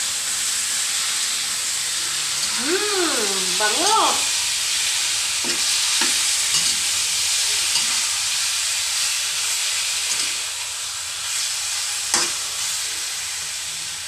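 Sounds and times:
meat sizzling in a wok: 0:00.0 - 0:14.0
spatula scraping a wok: 0:05.4 - 0:08.4.

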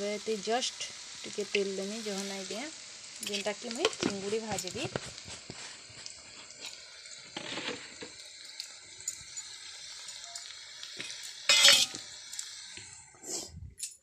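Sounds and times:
oil sizzling faintly: 0:00.0 - 0:13.8
steel utensils clinking: 0:11.0 - 0:12.1.

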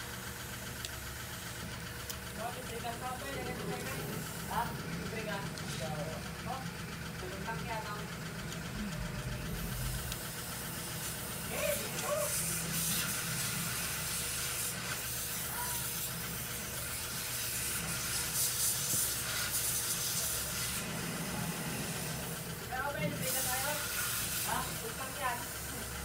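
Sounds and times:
low hum: 0:00.0 - 0:13.7
steady hissing: 0:09.3 - 0:22.6, 0:23.2 - 0:26.0.

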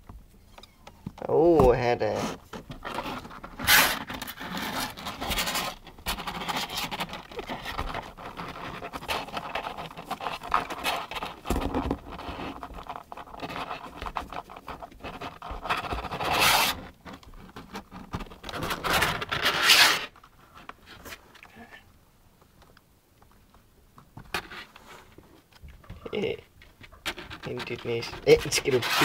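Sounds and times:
scratching in cardboard box: 0:02.0 - 0:20.2, 0:26.9 - 0:29.0.

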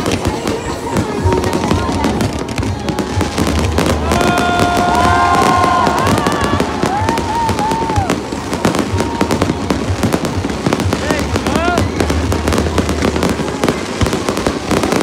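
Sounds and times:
fireworks crackling and banging: 0:00.0 - 0:15.0.

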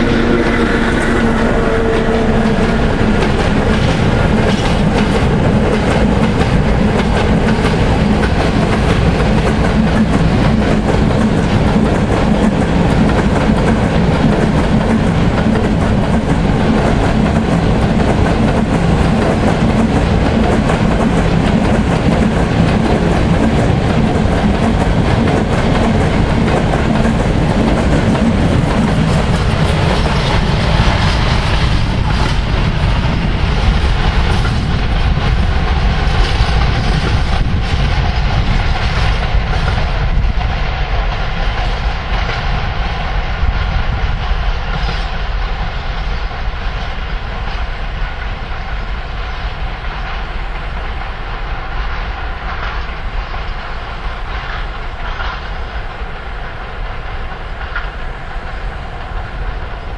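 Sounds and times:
train wheels clattering on rails: 0:00.0 - 0:59.9.

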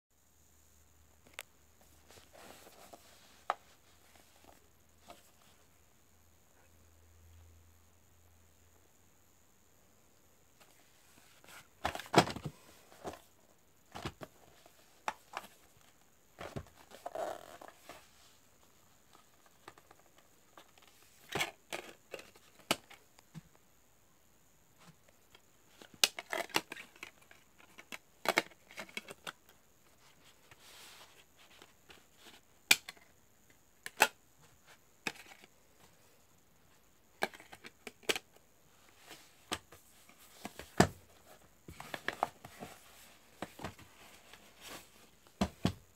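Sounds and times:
plastic case clicking and rustling: 0:11.8 - 0:13.3, 0:25.8 - 0:29.5, 0:37.2 - 0:38.4.

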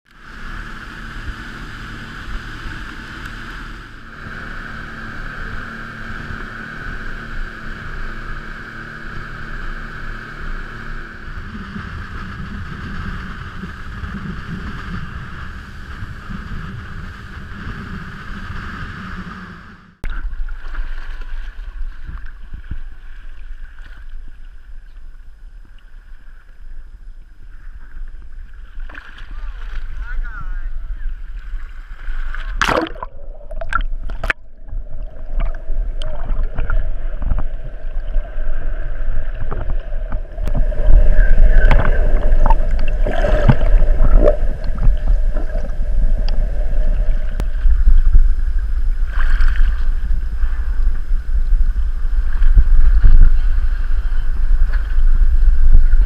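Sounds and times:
boat motor running: 0:00.0 - 0:56.0
water rushing along hull: 0:00.1 - 0:56.0
wind on microphone: 0:00.2 - 0:19.9, 0:33.0 - 0:56.0
water sloshing against hull: 0:20.1 - 0:56.0.

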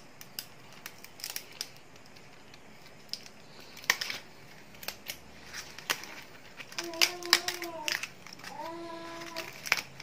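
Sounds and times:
leaf crinkling and crackling: 0:00.0 - 0:10.0.

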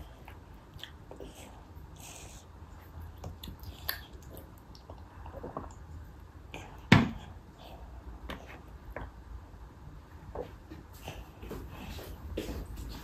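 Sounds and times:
toddler chewing wetly: 0:00.0 - 0:05.9.

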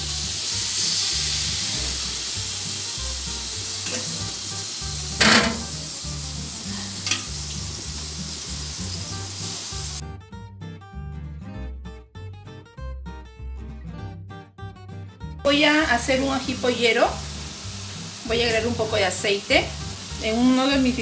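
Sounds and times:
meat juices sizzling: 0:00.0 - 0:10.0, 0:15.5 - 0:21.0.

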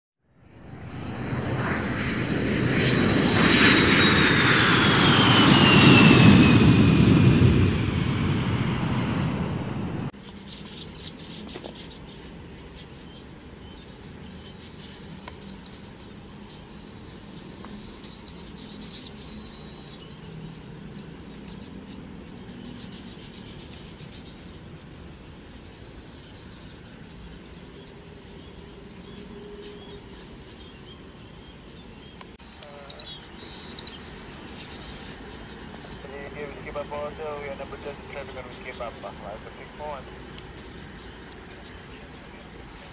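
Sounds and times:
loud aircraft engine: 0:00.4 - 0:42.9
insects chirring: 0:01.0 - 0:08.8, 0:10.1 - 0:42.9
bird chirps: 0:10.2 - 0:24.6, 0:25.9 - 0:36.3.

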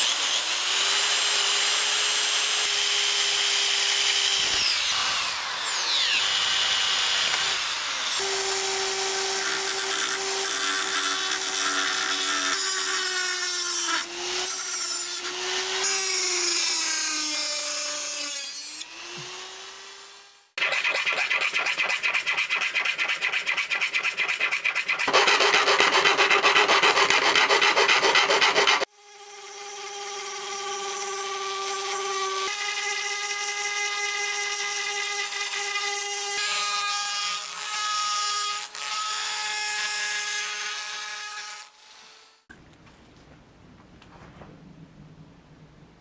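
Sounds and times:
file rasping on metal: 0:20.6 - 0:28.9.

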